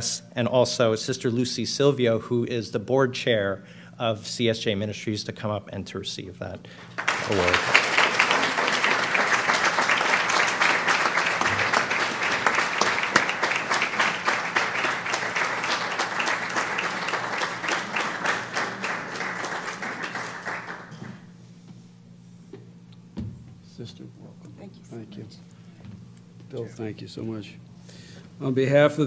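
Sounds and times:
audience applauding: 0:06.9 - 0:21.3.

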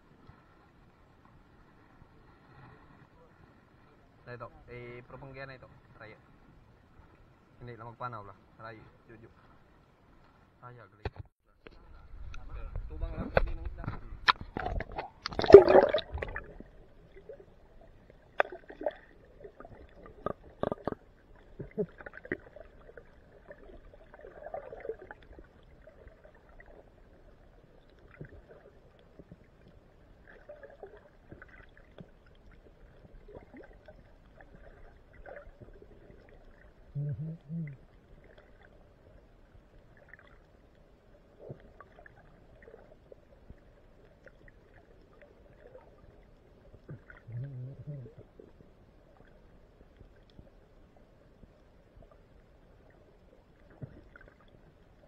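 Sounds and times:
loud splash into water: 0:14.4 - 0:16.4.

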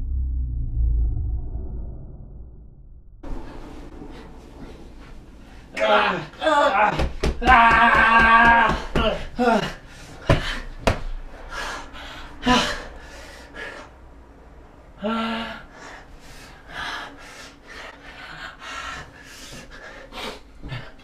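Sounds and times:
heavy gasping and panting: 0:08.7 - 0:14.0, 0:15.0 - 0:21.0.

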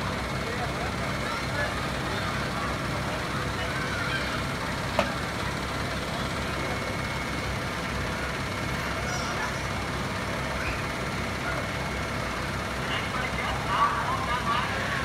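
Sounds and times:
diesel engine rumble: 0:00.0 - 0:15.0.

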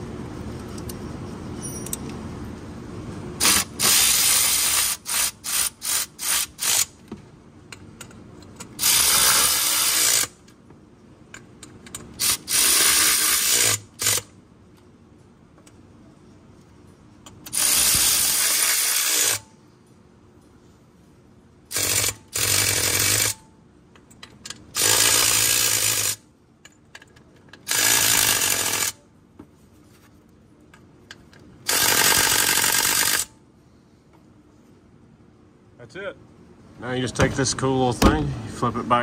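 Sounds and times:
air ratchet bursts: 0:03.4 - 0:07.0, 0:08.7 - 0:10.4, 0:12.2 - 0:14.3, 0:17.4 - 0:19.5, 0:21.7 - 0:23.4, 0:24.7 - 0:26.2, 0:27.6 - 0:29.0, 0:31.6 - 0:33.3.

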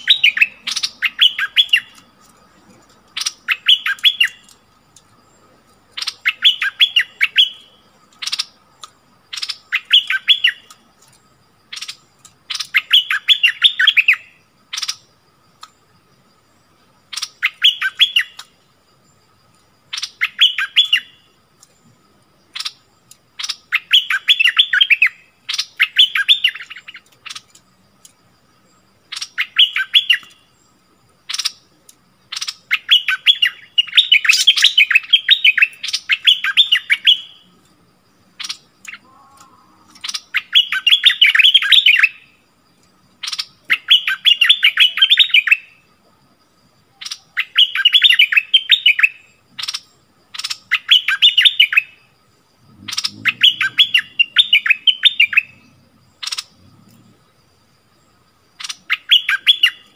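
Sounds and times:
bird call notes: 0:00.0 - 0:04.6, 0:05.9 - 0:15.8, 0:17.1 - 0:18.6, 0:19.9 - 0:21.4, 0:32.3 - 0:37.5, 0:38.4 - 0:42.4, 0:43.1 - 0:45.9, 0:46.9 - 0:56.7, 0:58.6 - 0:59.9
bird song bubbly notes: 0:52.7 - 0:55.6.

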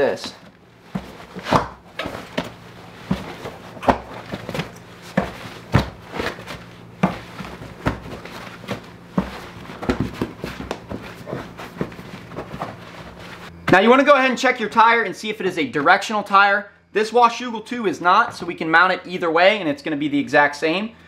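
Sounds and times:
low steady hum: 0:00.0 - 0:19.4
rubber knocks and rubbing: 0:00.2 - 0:13.5.

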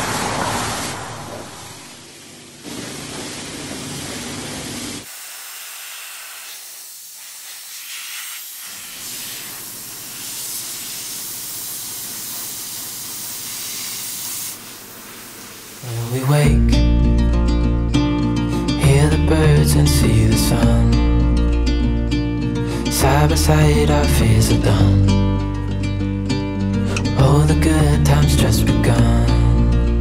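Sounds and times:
pressure washer spraying water: 0:00.0 - 0:16.3.

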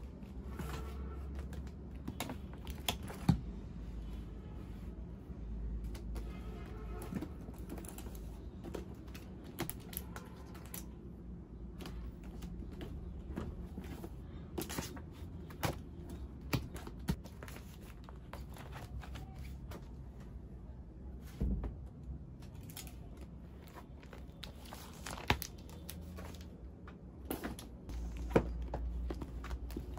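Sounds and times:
paper rustling: 0:22.6 - 0:26.6
books knocking on a desk: 0:28.2 - 0:29.9.

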